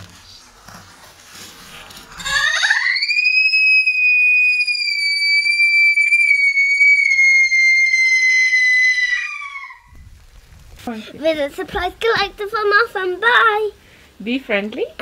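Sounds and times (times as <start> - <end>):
girl's high-pitched squeal: 2.2 - 10.0.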